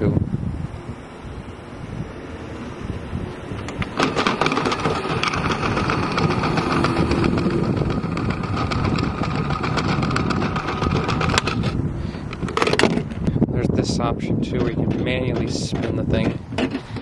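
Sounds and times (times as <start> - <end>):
toy washing machine motor whine: 3.8 - 11.7
plastic balls rattling in drum: 3.8 - 13.1.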